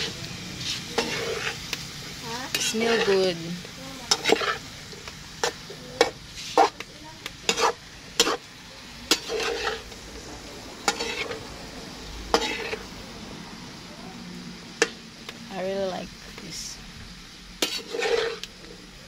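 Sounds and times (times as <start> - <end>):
metal spatula scraping wok: 0.0 - 13.0, 17.6 - 18.8
food sizzling: 0.0 - 19.0.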